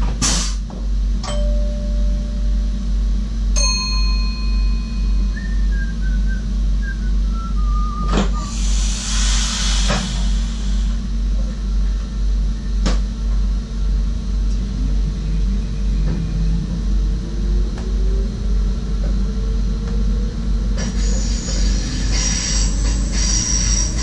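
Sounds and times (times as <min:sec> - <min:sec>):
train rumbling on track: 0:00.0 - 0:24.0
faint whine rising in pitch: 0:04.2 - 0:08.5, 0:14.5 - 0:20.6
loud high hiss: 0:08.4 - 0:11.0.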